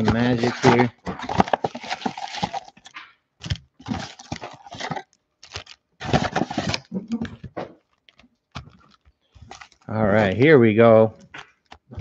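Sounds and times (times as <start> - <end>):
cardboard box tearing and rustling: 0.0 - 6.9.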